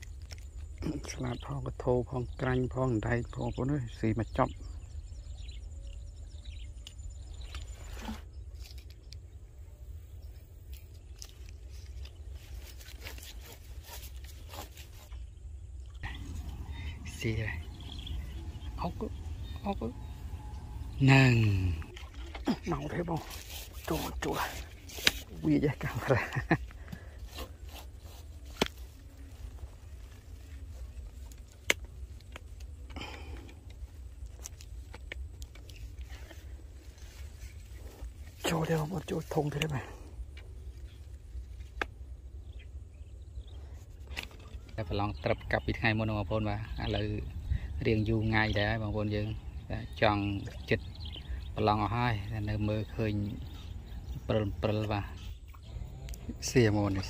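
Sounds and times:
handling rustling and scraping: 10.6s - 17.5s, 21.9s - 39.6s
steady low rumble: 15.4s - 23.1s
wind rumble on microphone: 15.6s - 22.0s, 44.6s - 57.0s.

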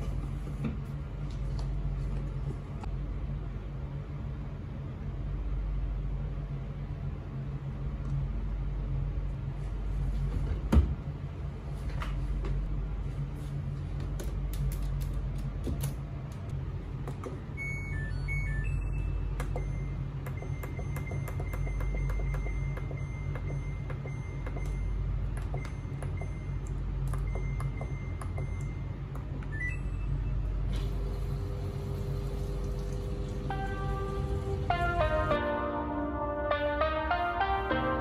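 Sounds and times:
steady low hum: 0.0s - 38.0s
washing machine panel beeping: 17.5s - 35.2s.

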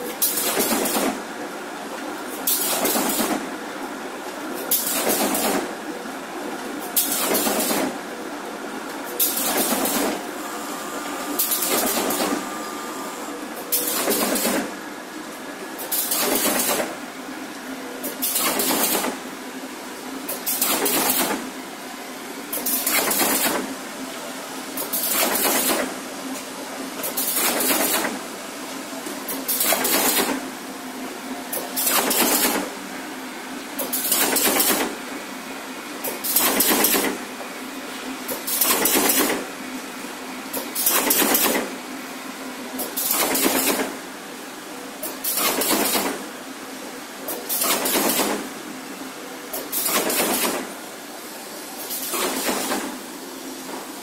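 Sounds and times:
machine humming: 8.1s - 18.3s.

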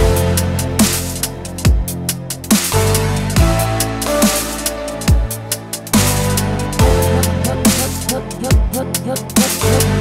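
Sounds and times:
sustained bass line: 0.0s - 10.0s
electronic dance music: 6.0s - 10.0s
deep kick drum: 6.8s - 7.9s.

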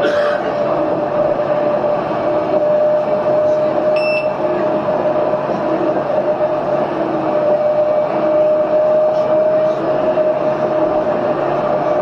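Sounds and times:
tram running with whine: 0.0s - 12.0s
short electronic beep: 4.0s - 4.3s.

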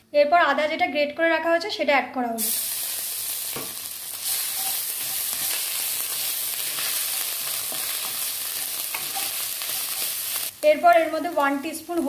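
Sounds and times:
ginger frying in hot oil: 2.4s - 12.0s.

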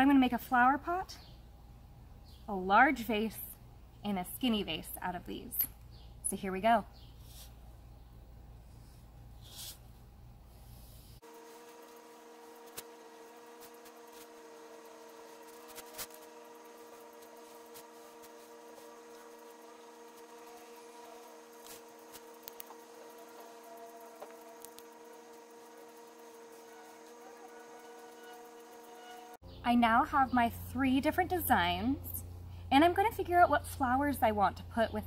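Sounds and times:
steady tonal hum: 6.2s - 35.0s
marker scratching on cardboard: 9.4s - 9.9s.

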